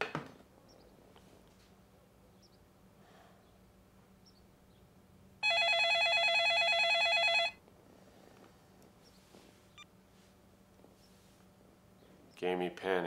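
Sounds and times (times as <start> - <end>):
telephone ringer trilling: 5.4 - 7.6.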